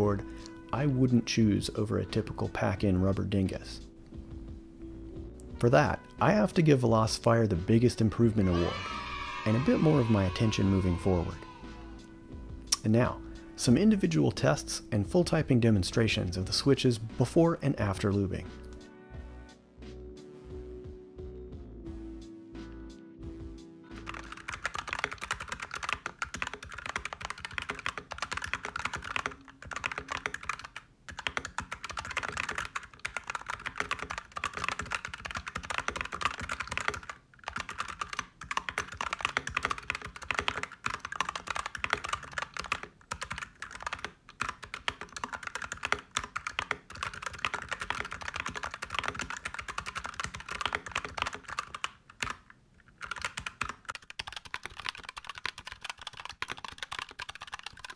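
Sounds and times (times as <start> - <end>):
fast typing on mechanical keyboard: 24.0 - 57.9.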